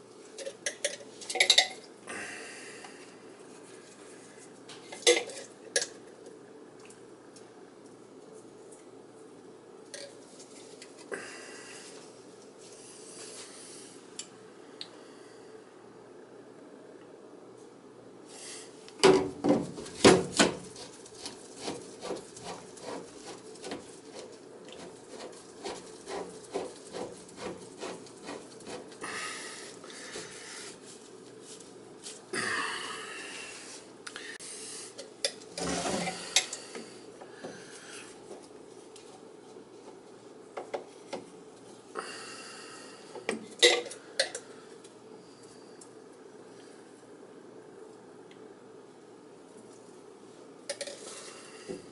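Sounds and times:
plastic fitting rubbing and scraping: 0:19.9 - 0:29.0.

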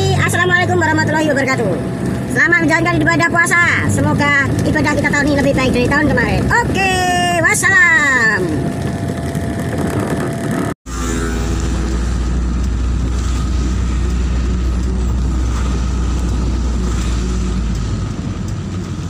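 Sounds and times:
engine and tyre rumble: 0:00.0 - 0:19.0.

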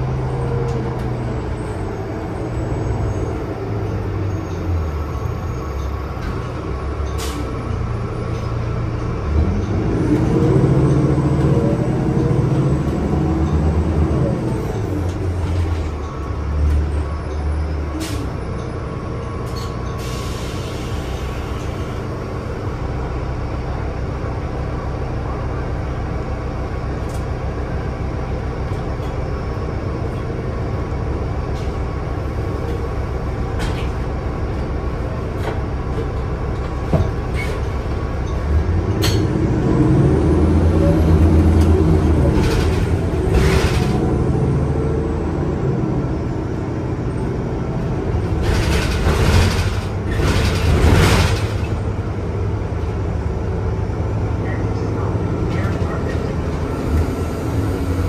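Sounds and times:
bus engine running: 0:00.0 - 0:58.0
air brake hissing: 0:20.0 - 0:22.0.

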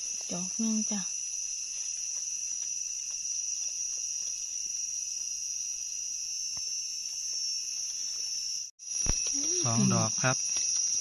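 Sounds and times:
insects droning: 0:00.0 - 0:11.0.

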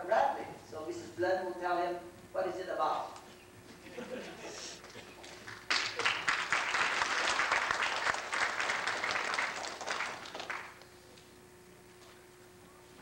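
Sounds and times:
audience applauding: 0:05.2 - 0:10.8.

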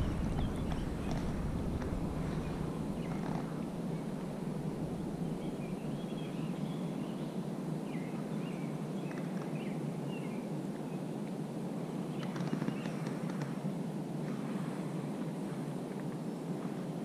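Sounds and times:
faint songbird chirps: 0:00.0 - 0:01.5, 0:02.1 - 0:11.2
low outdoor rumble: 0:00.0 - 0:07.7.

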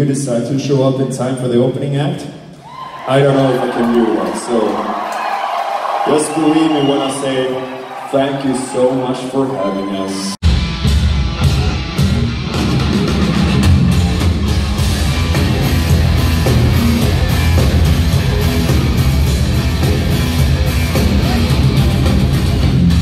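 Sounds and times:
heavy metal band playing live: 0:10.4 - 0:23.0.

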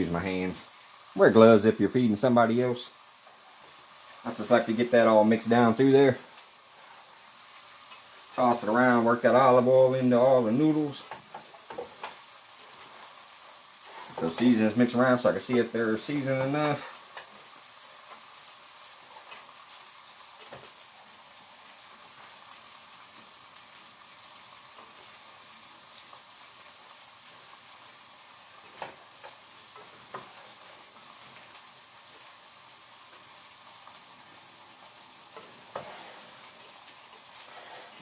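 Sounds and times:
chicken sizzling on griddle: 0:00.0 - 0:38.0.

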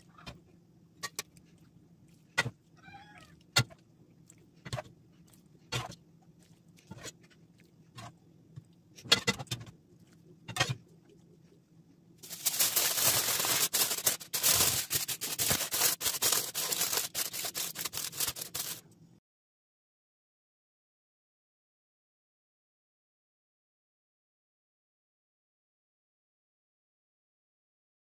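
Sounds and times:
aluminium foil crinkling: 0:12.2 - 0:18.8.

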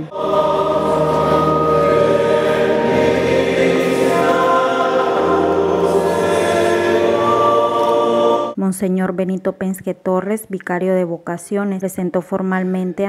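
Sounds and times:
choir singing long notes: 0:00.0 - 0:08.6.

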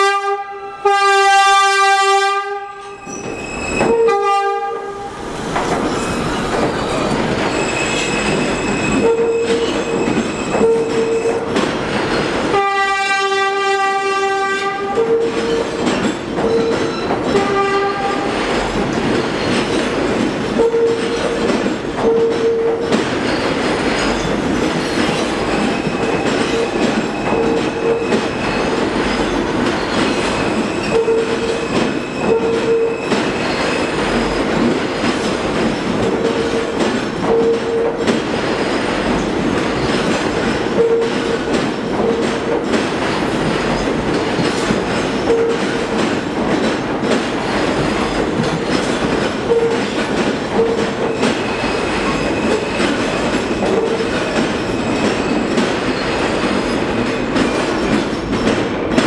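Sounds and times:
train horn blasts: 0:00.0 - 0:03.1, 0:03.8 - 0:05.2, 0:08.9 - 0:09.8, 0:10.5 - 0:11.4, 0:12.5 - 0:15.8, 0:16.4 - 0:18.4, 0:20.6 - 0:21.2, 0:22.0 - 0:22.9, 0:30.9 - 0:31.6, 0:32.2 - 0:33.2, 0:36.2 - 0:38.0, 0:40.8 - 0:41.4, 0:45.2 - 0:45.8, 0:49.5 - 0:50.9
train wheels clattering: 0:02.8 - 0:59.0
wheel squeal: 0:03.0 - 0:04.0, 0:05.4 - 0:11.4, 0:23.2 - 0:34.5, 0:51.1 - 0:53.6, 0:54.3 - 0:56.8.

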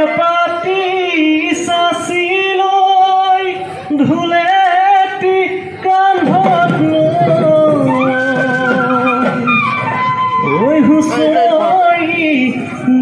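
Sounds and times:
voices singing: 0:00.0 - 0:13.0
flute playing: 0:06.5 - 0:13.0.

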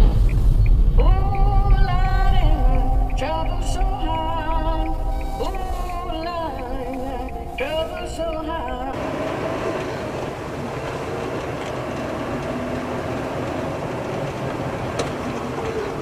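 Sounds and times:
faint hum: 0:00.0 - 0:10.4
car road and engine rumble: 0:00.0 - 0:16.0.

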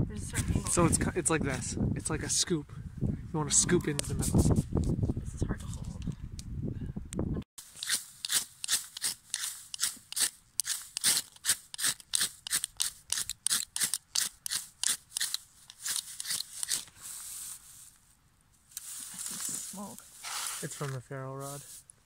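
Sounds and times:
metal striker scraping rod: 0:07.7 - 0:16.9.

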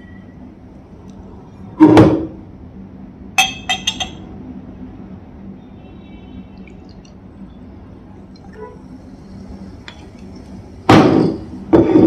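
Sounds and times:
bottle clinking against glass: 0:03.4 - 0:04.2
drink pouring: 0:08.1 - 0:11.6.

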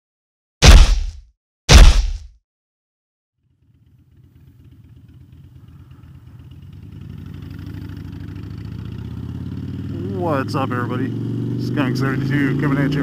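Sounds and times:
motorcycle engine idling: 0:03.4 - 0:10.4.

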